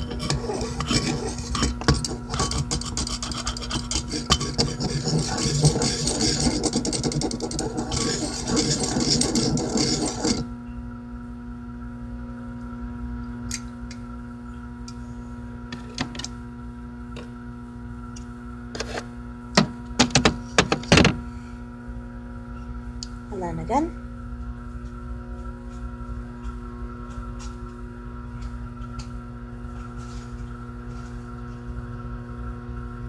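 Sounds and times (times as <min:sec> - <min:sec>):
knife scraping in bowl: 0:00.0 - 0:10.5.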